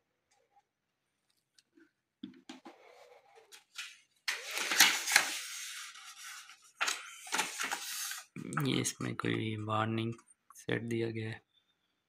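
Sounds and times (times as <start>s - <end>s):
packing material rustling: 3.5s - 8.4s.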